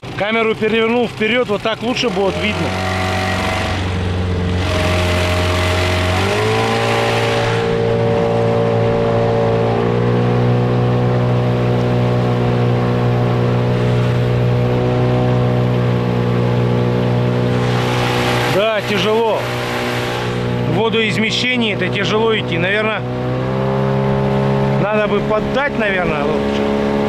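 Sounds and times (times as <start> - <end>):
outboard motor running: 0.0 - 27.0.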